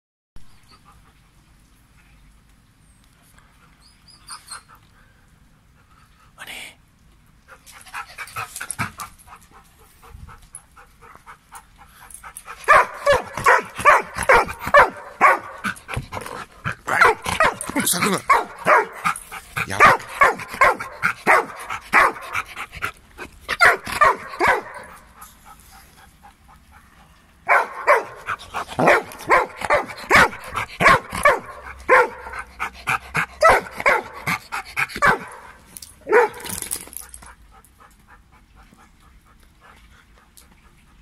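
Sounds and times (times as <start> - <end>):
dog barking: 12.7 - 15.8, 16.9 - 22.3, 23.6 - 25.0, 27.5 - 32.5, 33.4 - 34.4, 35.0 - 36.5.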